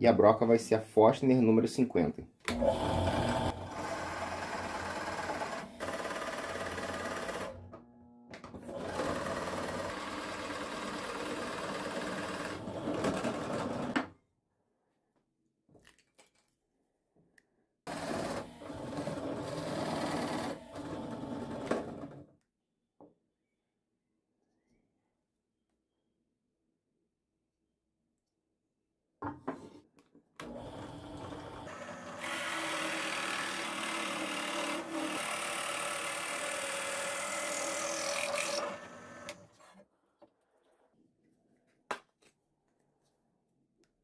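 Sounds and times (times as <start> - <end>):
drill press boring wood: 2.5 - 7.8, 8.6 - 14.0, 17.9 - 22.2, 30.4 - 39.7.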